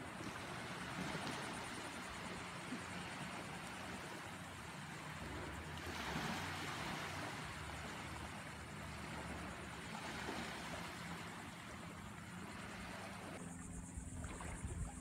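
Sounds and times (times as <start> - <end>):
low wind rumble: 3.0 - 15.0
small surf breaking on shore: 5.5 - 8.2.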